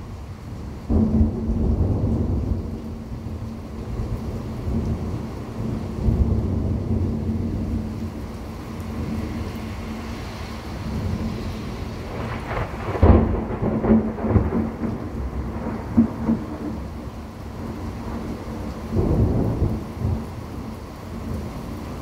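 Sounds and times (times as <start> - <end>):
thunder clap and rumbles: 0.8 - 9.7, 10.7 - 21.5.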